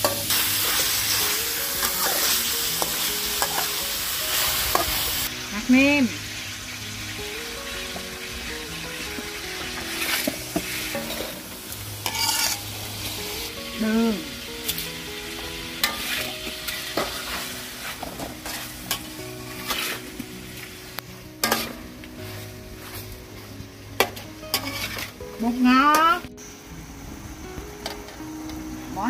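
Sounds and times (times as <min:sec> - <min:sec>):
spatula scraping a pan: 0:00.0 - 0:05.1, 0:09.8 - 0:11.4, 0:12.0 - 0:13.2, 0:15.8 - 0:20.3, 0:21.4 - 0:25.2
food sizzling in a hot pan: 0:00.0 - 0:29.0.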